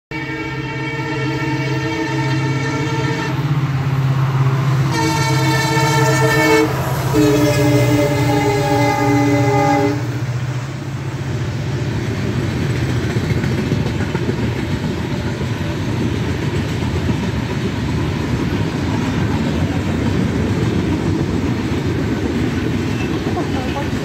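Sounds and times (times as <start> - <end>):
locomotive horn: 0.1 - 3.6, 4.8 - 10.4
train coaches rumbling on rails: 0.1 - 24.0.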